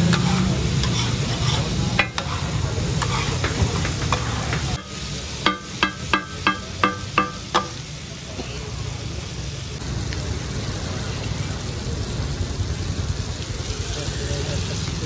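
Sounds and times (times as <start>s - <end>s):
metal spatula clanging on griddle: 0.0s - 7.9s
chicken frying in oil: 0.0s - 15.0s.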